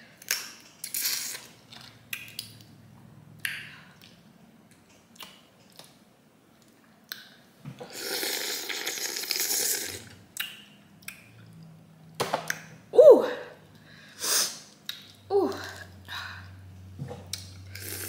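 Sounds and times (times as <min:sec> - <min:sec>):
loud wet slurp: 0:07.9 - 0:10.1, 0:17.7 - 0:18.0.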